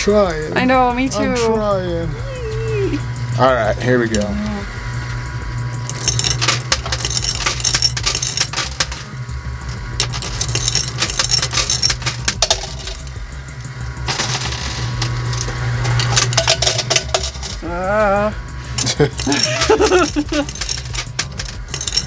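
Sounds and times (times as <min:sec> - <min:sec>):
steady low hum: 0:00.0 - 0:22.0
coins clattering in machine: 0:05.7 - 0:17.8, 0:18.7 - 0:22.0.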